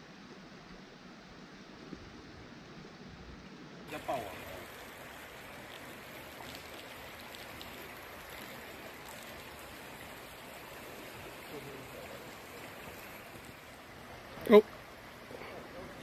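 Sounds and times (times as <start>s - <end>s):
creek water over stones: 3.9s - 16.0s.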